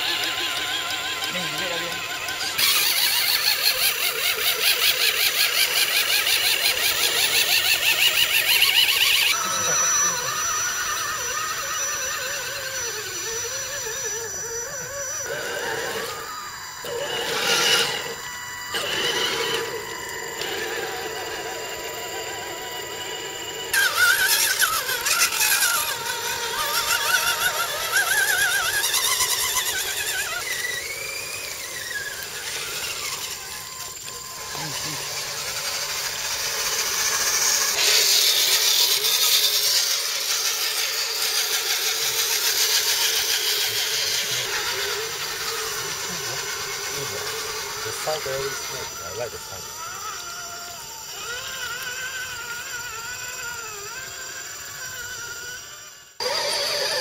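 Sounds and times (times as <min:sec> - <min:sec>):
electric motors whining: 0:00.0 - 0:57.0.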